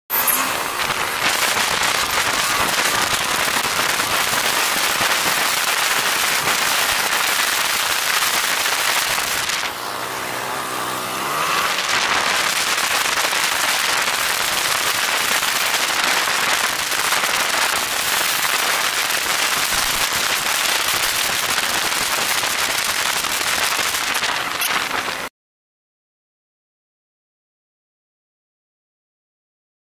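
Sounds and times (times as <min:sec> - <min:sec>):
motorcycle engine: 0:00.1 - 0:18.5.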